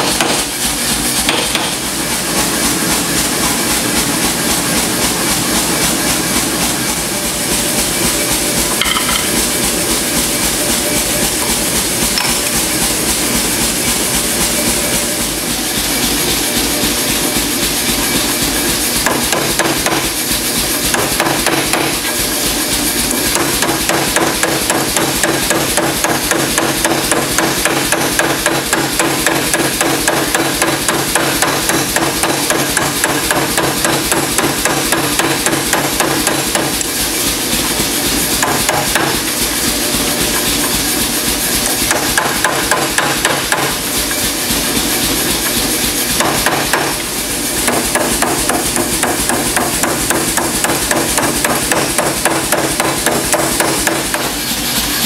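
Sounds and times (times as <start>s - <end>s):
power hammer striking steel: 0.0s - 1.9s, 7.8s - 12.9s, 18.1s - 20.2s, 20.8s - 22.4s, 23.1s - 37.8s, 38.4s - 54.4s.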